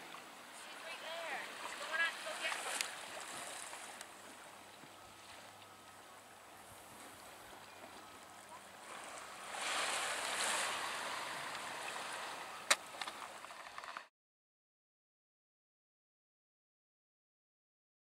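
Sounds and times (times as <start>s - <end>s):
water lapping: 0.0s - 14.1s.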